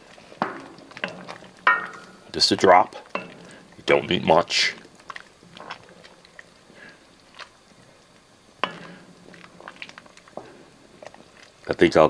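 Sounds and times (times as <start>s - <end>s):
wet squelching of stirred beans: 0.0s - 12.0s
spoon knocking against pot: 0.4s - 2.2s.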